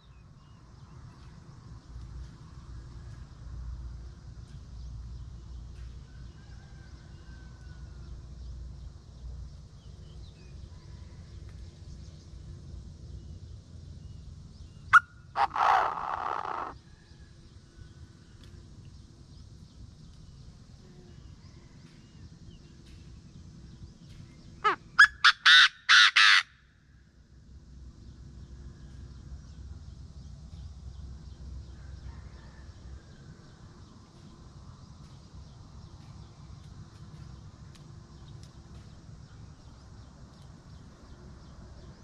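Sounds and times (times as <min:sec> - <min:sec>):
bird calling harshly: 0:14.9 - 0:16.8, 0:24.6 - 0:26.5.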